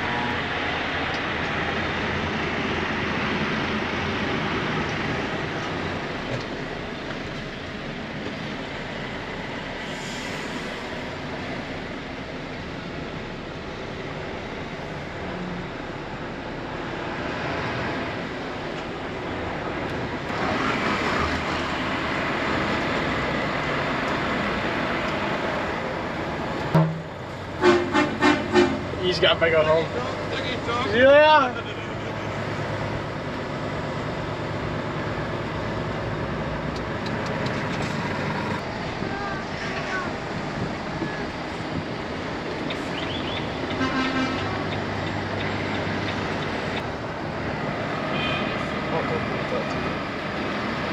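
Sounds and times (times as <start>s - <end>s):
diesel engine drone: 0.0s - 50.9s
lorry engine rumble from cab: 25.5s - 50.1s.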